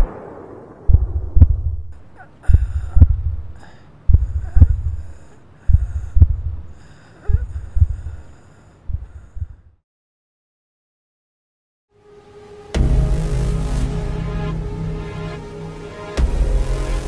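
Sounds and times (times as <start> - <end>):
heartbeat thumps: 0.9 - 6.7, 7.3 - 8.3, 8.9 - 9.7.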